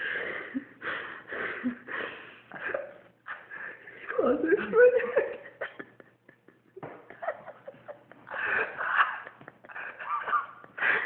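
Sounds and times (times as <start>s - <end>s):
man laughing: 5.5s - 11.0s.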